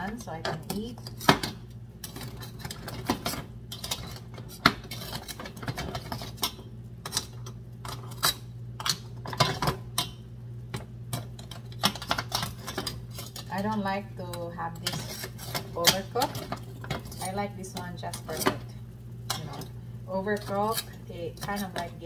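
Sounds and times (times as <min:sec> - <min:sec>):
steady low hum: 0:00.0 - 0:22.0
metal tongs clinking on pan: 0:11.1 - 0:18.7, 0:19.3 - 0:22.0.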